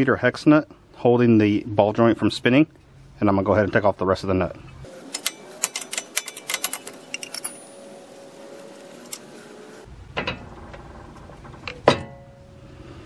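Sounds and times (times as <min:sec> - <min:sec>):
wrench click: 0:05.1 - 0:07.6
metallic knocks with ring: 0:11.8 - 0:12.4.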